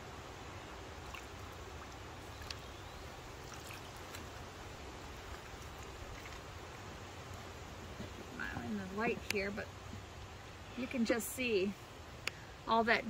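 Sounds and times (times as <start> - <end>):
water dripping and splashing: 0.7 - 10.5
water sloshing: 0.9 - 10.0.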